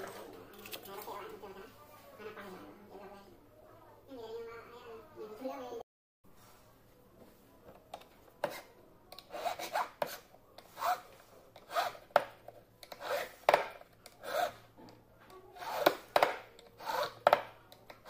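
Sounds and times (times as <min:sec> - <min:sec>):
hand file rasping on metal: 0:09.3 - 0:12.0, 0:12.9 - 0:13.4, 0:14.2 - 0:14.6, 0:15.6 - 0:16.1, 0:16.8 - 0:17.3.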